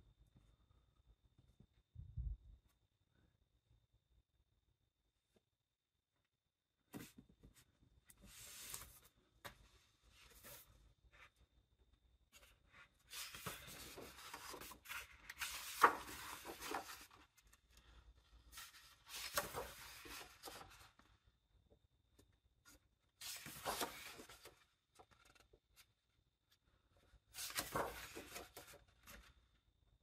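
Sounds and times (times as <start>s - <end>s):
book pages turning: 12.4s - 21.0s, 23.2s - 25.8s, 27.3s - 29.3s.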